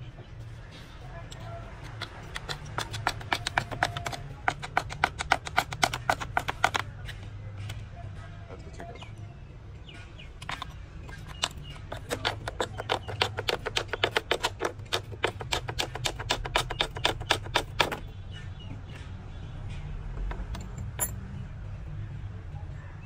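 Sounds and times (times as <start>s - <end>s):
fast sharp knocks: 1.9s - 6.9s, 11.3s - 18.1s.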